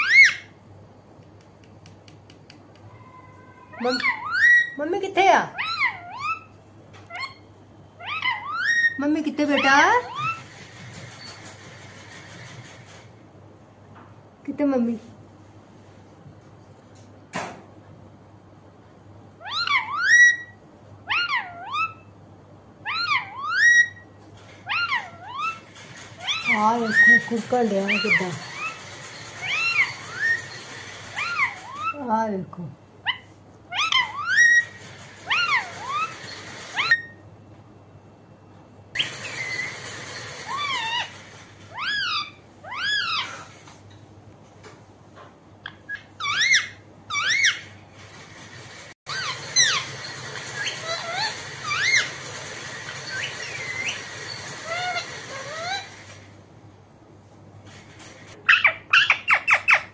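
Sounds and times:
parakeet chirps: 0.0s - 0.5s, 3.0s - 4.8s, 7.1s - 9.0s, 19.4s - 22.1s, 22.9s - 24.0s, 24.7s - 32.0s, 33.0s - 37.2s, 40.4s - 41.1s, 41.7s - 43.4s, 45.6s - 47.7s, 49.1s - 52.2s, 53.0s - 56.0s, 58.4s - 59.9s
parakeet calling: 0.0s - 0.6s, 3.0s - 10.6s, 19.4s - 22.1s, 22.8s - 24.0s, 24.6s - 32.1s, 33.0s - 37.2s, 40.4s - 43.5s, 45.6s - 47.8s, 49.1s - 52.2s, 52.9s - 56.1s, 58.4s - 59.9s.

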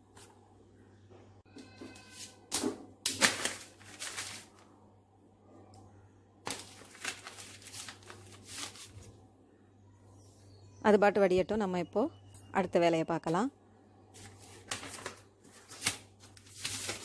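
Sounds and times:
newspaper rustling: 2.2s - 4.7s, 6.4s - 9.1s, 14.2s - 17.0s.

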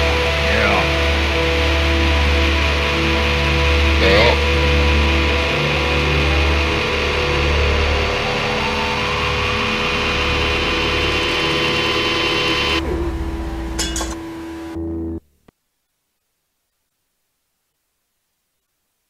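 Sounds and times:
heavy low rumble: 0.0s - 15.2s
distorted droning tones: 0.0s - 15.5s.

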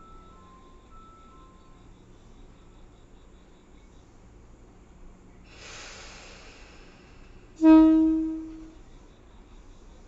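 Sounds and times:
soft air hiss: 4.0s - 10.0s
train horn blast: 7.5s - 8.8s.

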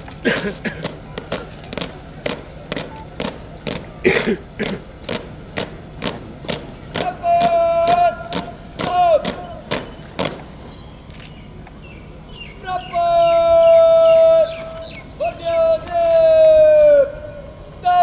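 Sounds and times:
marching drum beat: 0.2s - 10.6s
long shouted calls: 6.9s - 11.1s, 11.9s - 18.0s.

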